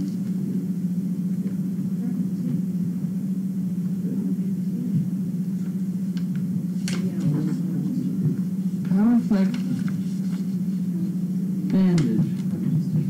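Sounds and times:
steady low hum: 0.0 - 13.0
paper being handled: 6.7 - 11.2.

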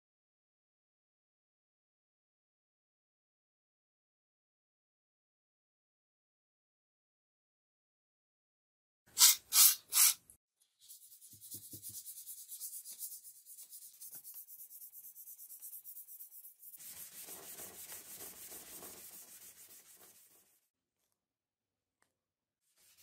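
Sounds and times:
aerosol can spraying: 9.2 - 10.2
sandpaper rubbing on steel blade: 9.2 - 10.2, 10.8 - 20.5.

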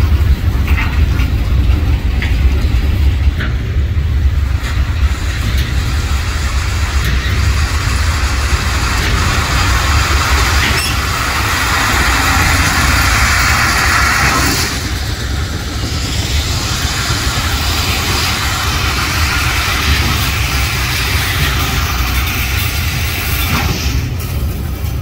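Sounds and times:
train wheels rumbling on rails: 0.0 - 25.0
gravel pouring with rushing hiss: 4.8 - 23.9.

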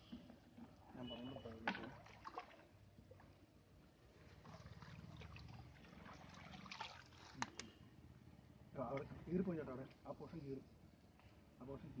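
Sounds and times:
fish splashing in shallow water: 0.8 - 3.5, 4.1 - 7.6.

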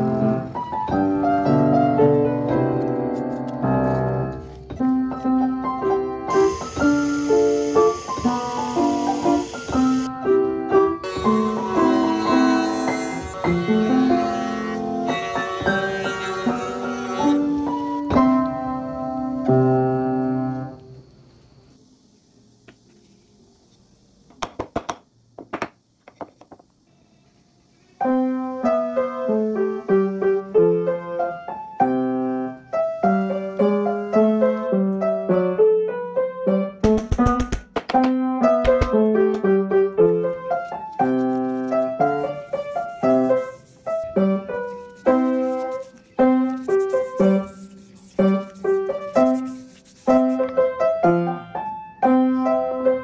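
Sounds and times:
piano music: 0.0 - 20.9, 28.0 - 37.0, 38.0 - 53.0
faint hiss: 0.0 - 53.0.

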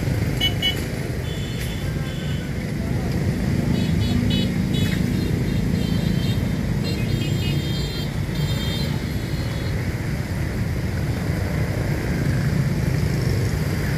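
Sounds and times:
traffic on a wet road: 0.0 - 13.9.

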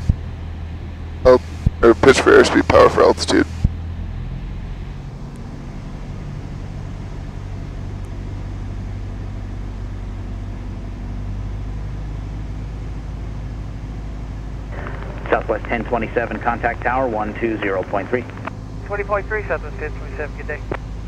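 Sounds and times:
light airplane engine droning: 0.0 - 21.0.

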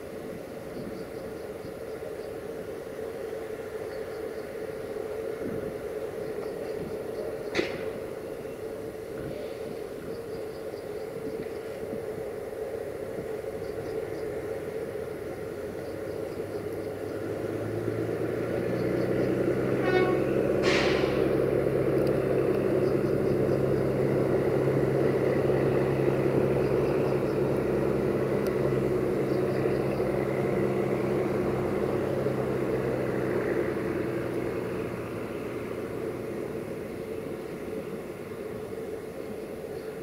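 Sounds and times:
electric locomotive passing: 0.0 - 40.0
train horn toot: 19.6 - 21.4.

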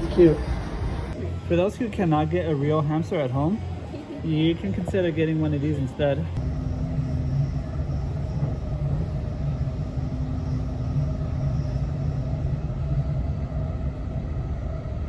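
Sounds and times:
faint steady hum: 6.4 - 15.0
moving train rumble: 6.4 - 15.0.

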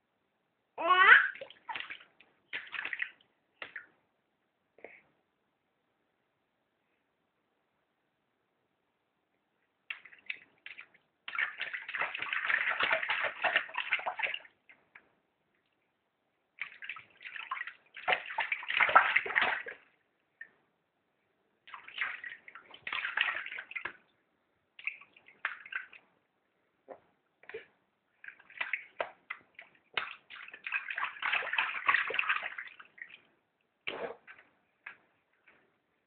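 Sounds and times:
bath water splashing: 1.3 - 3.9, 9.9 - 14.7, 16.6 - 20.6, 21.6 - 24.1, 24.7 - 26.1, 27.5 - 33.3.

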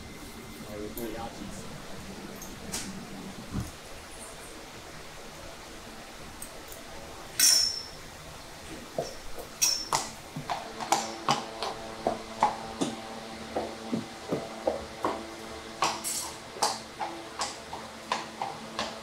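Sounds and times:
sharp metallic clink: 7.4 - 8.0, 9.6 - 10.0
horseshoes clopping on concrete: 8.8 - 19.0.

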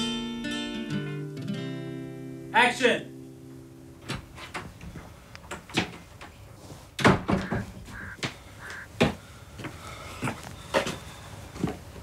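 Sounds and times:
wooden door opening and shutting: 4.0 - 6.4, 7.0 - 7.7
footsteps on tiles: 6.6 - 12.0.

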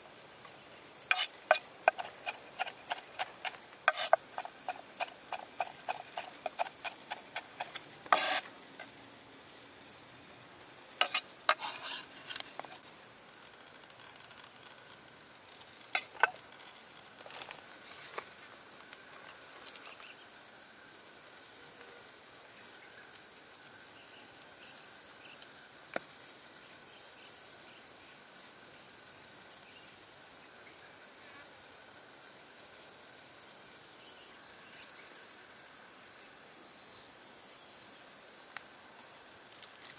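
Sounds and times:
insects chirping: 0.0 - 39.9
cleaver chopping on wooden board: 1.1 - 8.4
knife scraping board: 1.1 - 8.5, 11.0 - 12.8.

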